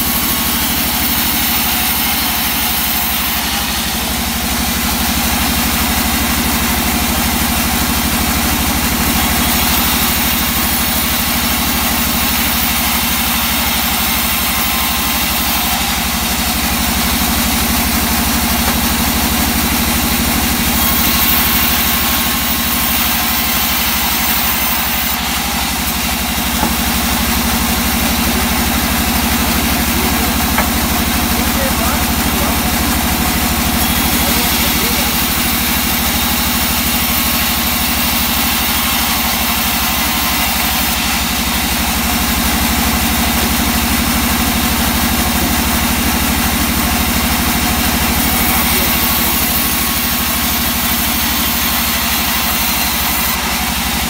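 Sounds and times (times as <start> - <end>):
saw blade ripping through wood: 0.0 - 5.2, 9.2 - 42.1, 47.4 - 54.0
bandsaw motor hum: 0.0 - 54.0.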